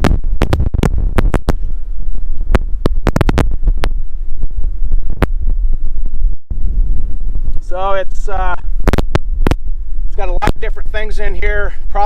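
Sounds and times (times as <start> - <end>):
sharp clicks and crackles: 0.0 - 6.1, 8.5 - 9.7
wind buffeting microphone: 0.0 - 12.0.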